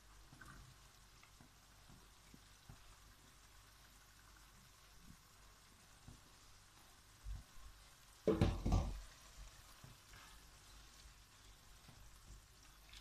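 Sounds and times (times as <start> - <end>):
vegetables frying faintly in a wok: 0.0 - 13.0
loud knocks against pan: 8.3 - 9.0
wooden spatula stirring: 8.3 - 13.0.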